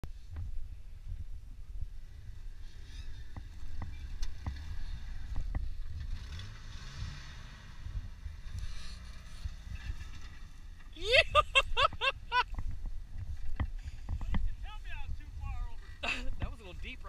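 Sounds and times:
wind rumble on microphone: 0.0s - 6.3s, 6.9s - 17.0s
engine revving under load: 2.6s - 10.9s.

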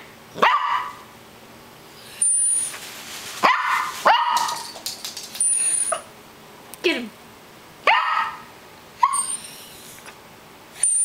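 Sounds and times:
small dog barking: 0.4s - 1.0s, 3.4s - 4.6s, 7.8s - 9.3s.

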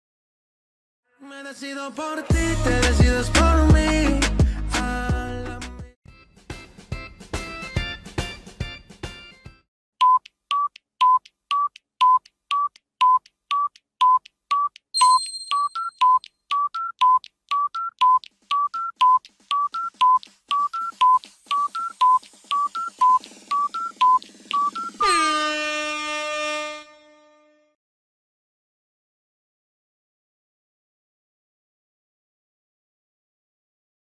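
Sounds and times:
countdown timer beeps: 10.0s - 25.4s
long ringing tone: 24.7s - 27.2s.

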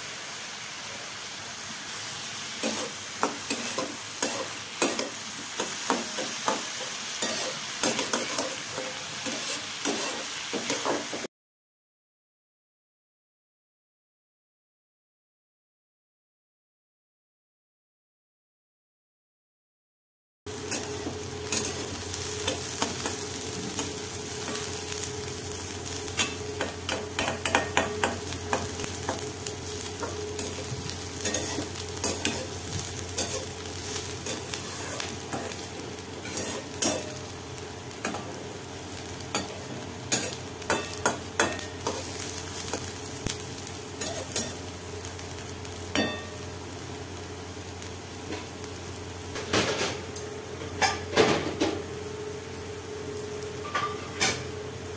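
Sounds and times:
food sizzling in pan: 0.0s - 11.3s, 20.5s - 54.9s
metal spatula scraping pan: 7.2s - 11.0s, 30.4s - 32.6s, 36.2s - 37.2s.

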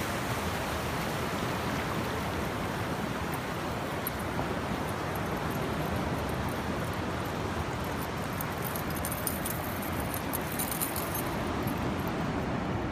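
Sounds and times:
ocean surf: 0.0s - 12.9s
high jingling clicks: 3.3s - 12.2s.

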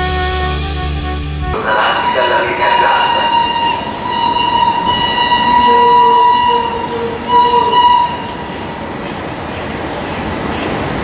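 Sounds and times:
steam train rolling: 0.3s - 11.0s
shrill sustained whistle tone: 1.6s - 8.8s.

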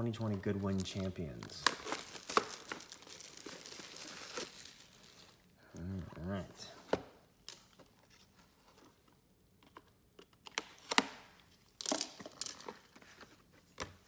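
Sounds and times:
plastic wrapping crinkling: 0.0s - 5.6s
plastic wrapping ripping: 0.2s - 5.4s.

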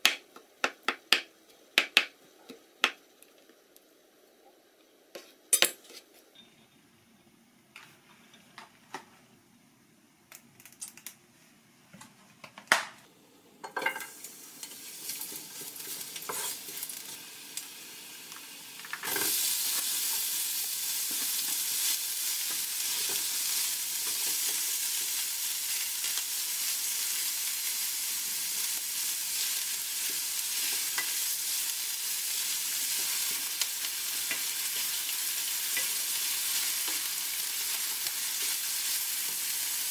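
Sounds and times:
meat sizzling in frying pan: 13.9s - 39.9s.

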